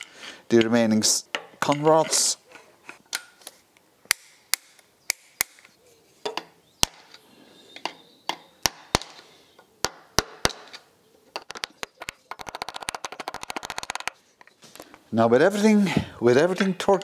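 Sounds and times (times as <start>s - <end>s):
fast rattle of clicks: 11.4s - 14.2s.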